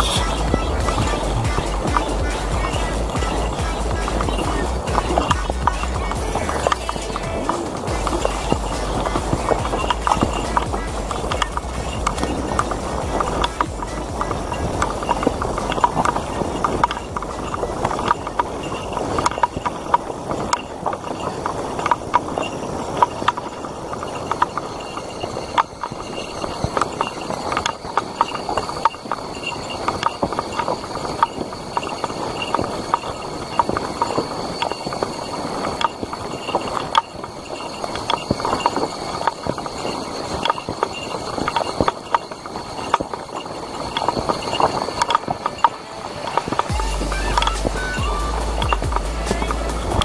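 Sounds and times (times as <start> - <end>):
cicadas calling: 0.0 - 50.0
footsteps on dirt trail: 0.0 - 50.0.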